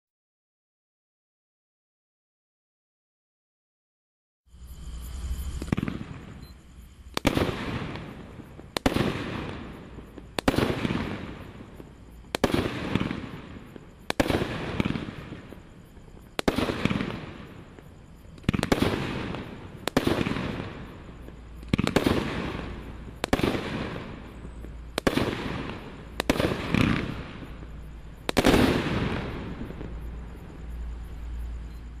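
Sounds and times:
firework cake bangs: 7.2 - 17.8, 18.4 - 30.0.

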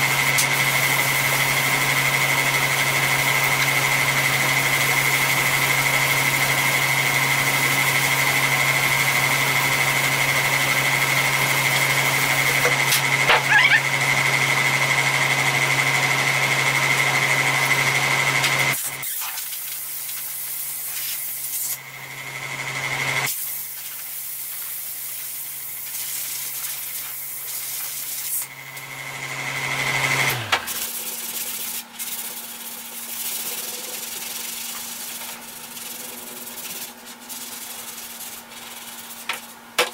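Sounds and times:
machine motor humming and whining: 0.0 - 19.0, 21.7 - 23.3, 24.9 - 37.3.

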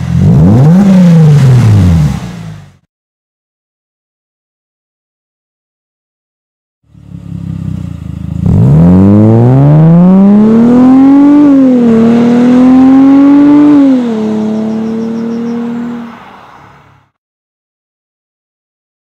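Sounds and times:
car engine accelerating: 0.0 - 2.8, 6.9 - 17.1.

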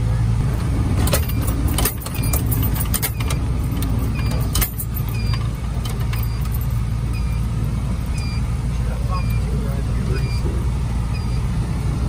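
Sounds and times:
truck knocks and rattles: 0.0 - 8.5
diesel engine running: 0.0 - 12.0.

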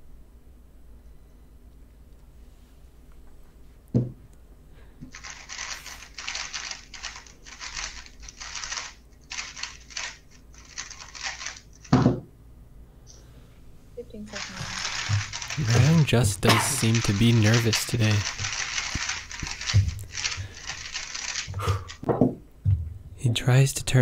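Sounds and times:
rapid plastic cube clicking: 5.1 - 12.0, 14.4 - 22.1.

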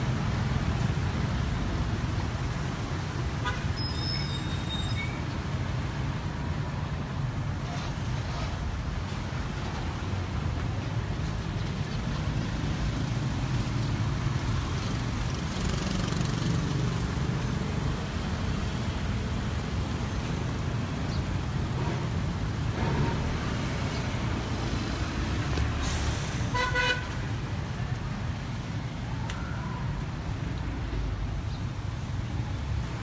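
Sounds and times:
street traffic rumble: 0.0 - 33.0
car horn toot: 26.5 - 27.1.

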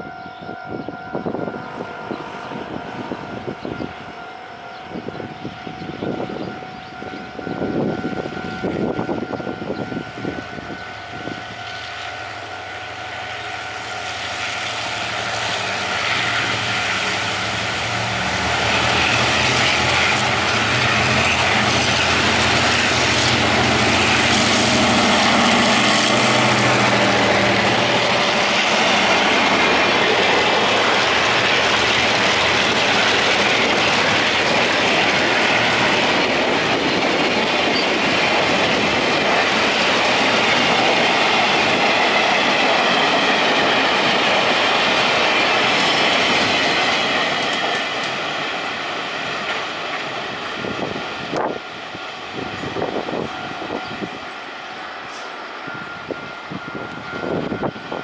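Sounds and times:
locomotive diesel engine: 13.8 - 58.0.

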